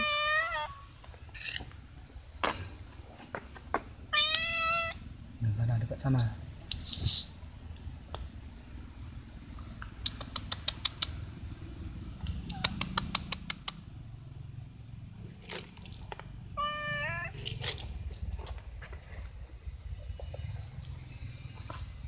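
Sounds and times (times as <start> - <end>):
cat meowing: 0.0 - 0.9, 4.1 - 5.0, 16.6 - 17.5
sharp clicks: 9.8 - 11.2, 12.2 - 13.8.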